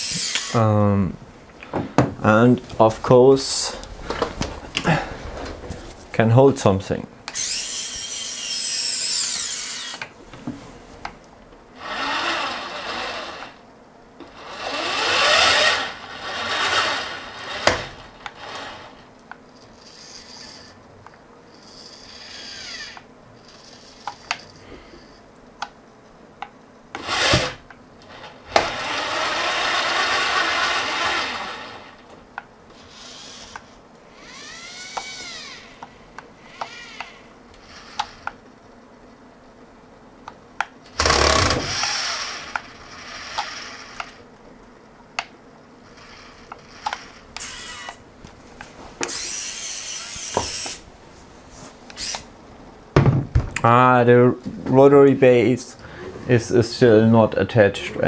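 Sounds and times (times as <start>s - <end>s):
robot arm motors whining: 0.0s - 0.6s, 7.3s - 10.1s, 11.8s - 13.6s, 14.3s - 20.8s, 21.5s - 25.2s, 27.0s - 32.1s, 32.7s - 38.4s, 40.9s - 44.3s, 45.8s - 48.0s, 49.0s - 50.9s, 51.9s - 52.3s.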